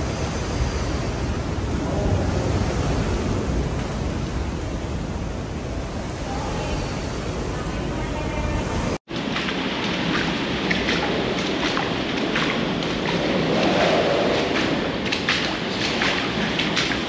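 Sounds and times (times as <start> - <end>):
winds rushing against building: 0.0 - 17.0
shoes walking through shallow water: 9.1 - 17.0.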